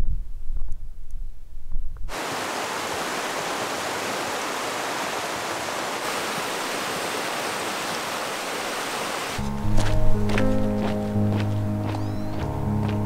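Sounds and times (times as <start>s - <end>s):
creek rushing over rocks: 2.1s - 9.4s.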